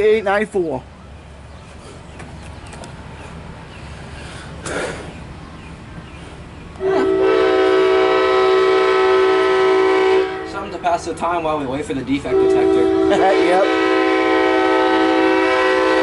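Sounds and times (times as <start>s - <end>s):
locomotive air horn chord: 6.8s - 10.8s, 12.3s - 16.0s.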